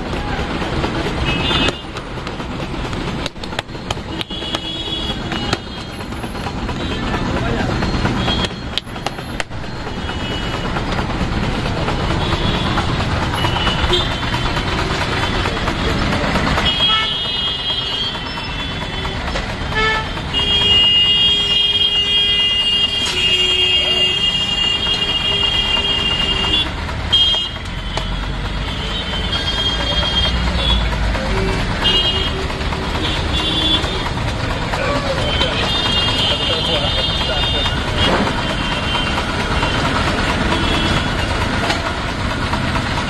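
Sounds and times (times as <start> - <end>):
steady traffic: 0.0 - 43.0
vehicle horns: 0.1 - 43.0
people talking: 6.8 - 8.6, 15.0 - 16.9, 23.2 - 24.4, 29.4 - 32.4, 34.6 - 39.8.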